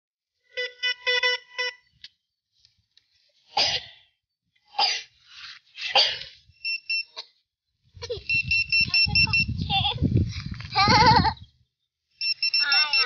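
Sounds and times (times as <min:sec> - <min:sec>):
metal detector beeping: 0:00.5 - 0:02.2, 0:06.5 - 0:07.2, 0:08.2 - 0:09.6, 0:12.2 - 0:13.0.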